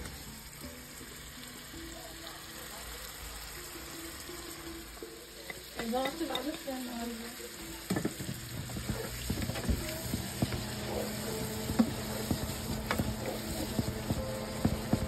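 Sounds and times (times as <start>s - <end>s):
food sizzling in a pan: 0.0s - 15.0s
spatula scraping and tapping pan: 7.9s - 15.0s.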